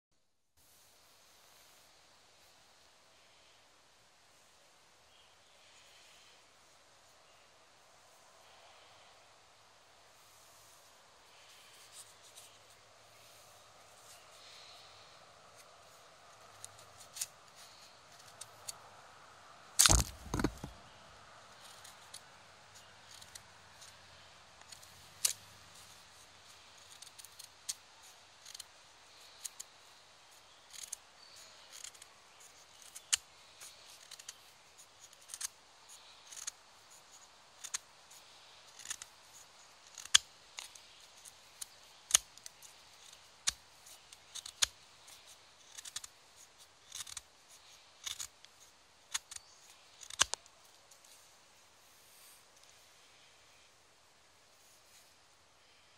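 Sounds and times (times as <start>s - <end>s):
knife shaving curls from wooden stick: 21.6s - 51.2s.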